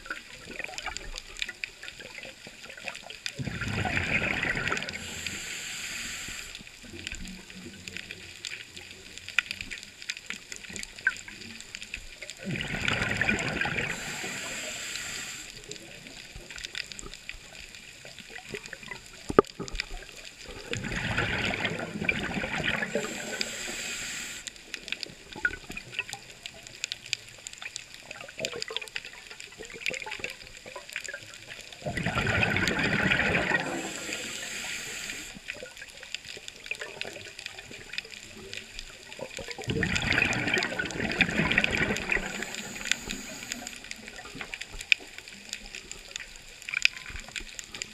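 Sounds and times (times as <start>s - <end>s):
exhaled bubbles rushing: 0.0s - 5.5s, 12.3s - 14.8s, 18.3s - 23.8s, 28.2s - 34.5s, 36.6s - 46.2s
faint crackling in water: 0.0s - 47.9s
diver breathing through regulator: 4.6s - 6.6s, 13.7s - 15.6s, 22.7s - 24.5s, 33.4s - 35.4s, 41.4s - 44.0s.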